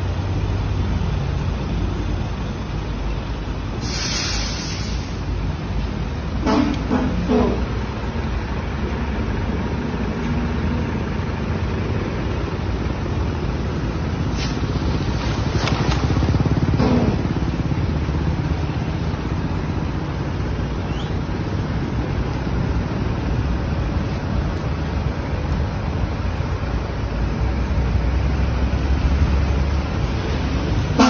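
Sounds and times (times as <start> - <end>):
vehicles driving through floodwater: 0.0 - 31.0.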